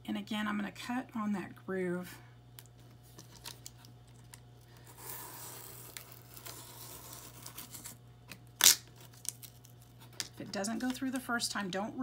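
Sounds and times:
blade cutting cardboard: 4.8 - 8.0.

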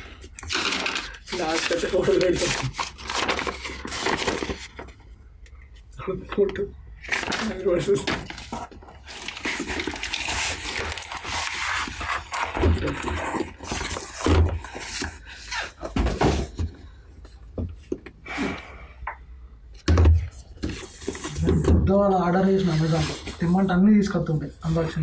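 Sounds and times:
paper and cardboard rustling: 0.0 - 5.0, 6.4 - 16.7, 20.0 - 25.0
envelope tearing open: 0.4 - 4.8, 7.0 - 15.6.

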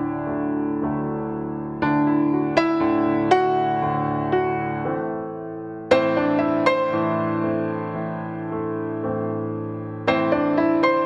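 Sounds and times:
soft slow piano music: 0.0 - 11.0.

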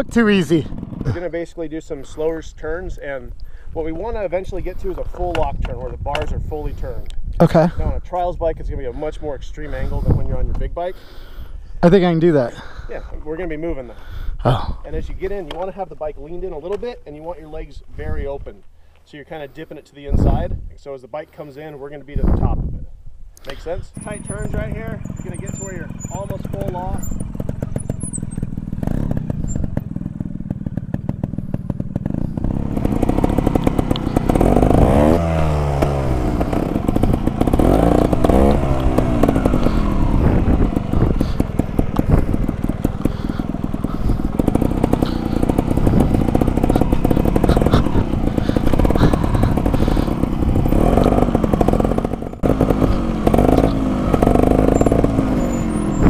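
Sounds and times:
motorcycle engine revving: 0.0 - 6.8, 23.9 - 56.0.

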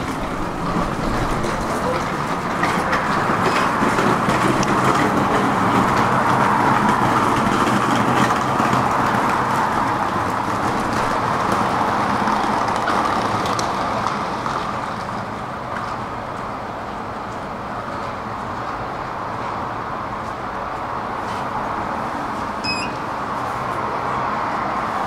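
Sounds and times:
road traffic rushing: 0.0 - 25.0.

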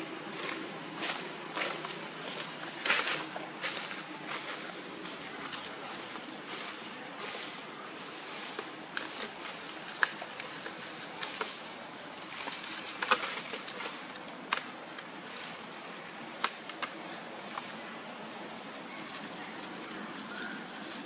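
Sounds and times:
steady outdoor hiss: 0.0 - 21.0
crackles and taps on dry leaves: 8.4 - 15.1, 16.4 - 17.7.

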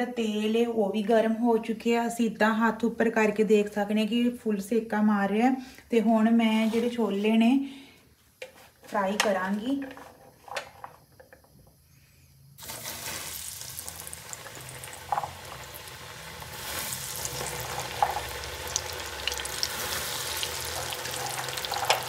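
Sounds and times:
chickpeas sizzling in hot oil: 12.6 - 22.0
oil popping: 12.6 - 22.0.

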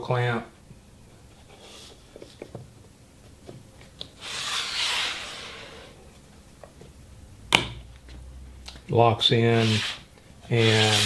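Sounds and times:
wood scraping against jig: 4.2 - 5.9, 9.5 - 11.0.

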